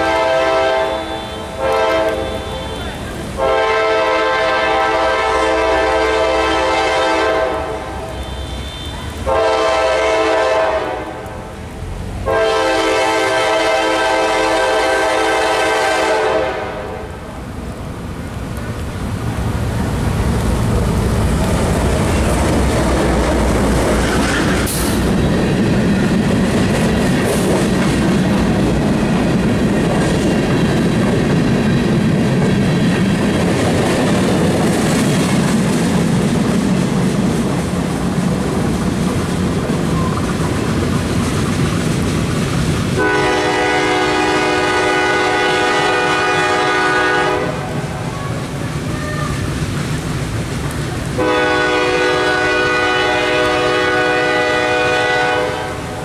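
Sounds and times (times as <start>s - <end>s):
locomotive air horn blast: 0.0s - 11.4s, 12.2s - 17.2s, 43.0s - 49.4s, 51.2s - 56.0s
diesel locomotive passing: 0.0s - 56.0s
freight cars rolling on rails: 0.0s - 56.0s.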